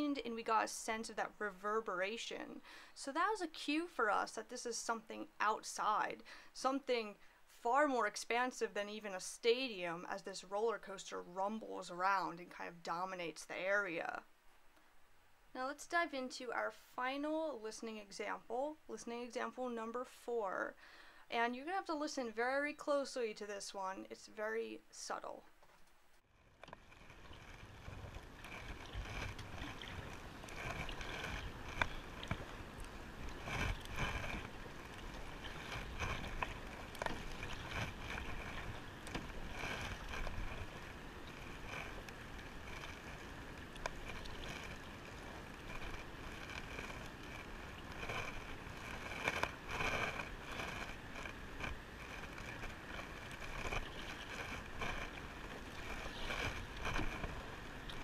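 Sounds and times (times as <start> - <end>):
steady outdoor wash: 26.4 - 58.0
paddle splashing in water: 26.8 - 58.0.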